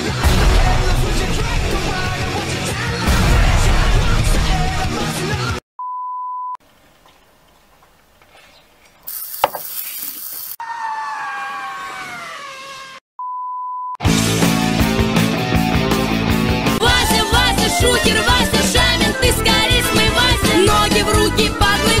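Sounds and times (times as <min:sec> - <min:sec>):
hiss: 0:09.1 - 0:10.6
steady beep tone: 0:13.2 - 0:14.0.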